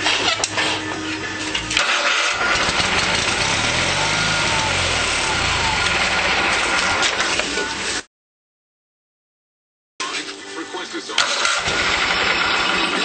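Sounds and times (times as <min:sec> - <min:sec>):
lawn tractor engine starting: 0:01.4 - 0:07.8, 0:11.2 - 0:13.0.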